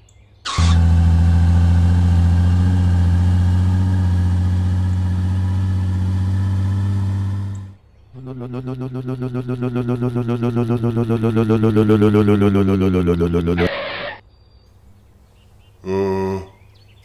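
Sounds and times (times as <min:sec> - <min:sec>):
car engine droning: 0:00.5 - 0:13.7.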